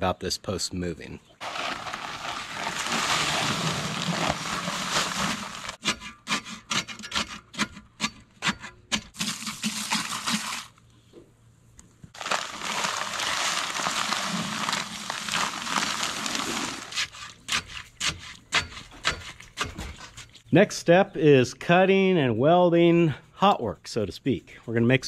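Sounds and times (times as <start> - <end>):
dry concrete mix pouring: 1.4 - 5.8, 9.1 - 10.8, 12.1 - 20.0
hose spraying water: 1.4 - 5.8, 9.2 - 10.8, 12.2 - 17.4
paper bag rustling: 1.4 - 5.8, 12.1 - 17.4.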